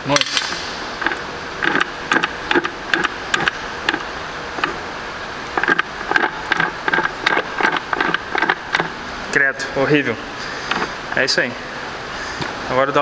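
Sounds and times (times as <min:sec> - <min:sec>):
gearbox gears clicking and knocking: 0:00.2 - 0:04.0, 0:05.6 - 0:08.9.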